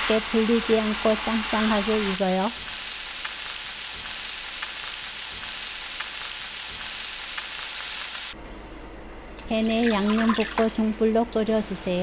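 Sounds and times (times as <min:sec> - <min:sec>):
meat sizzling in a pan: 0:00.0 - 0:08.4.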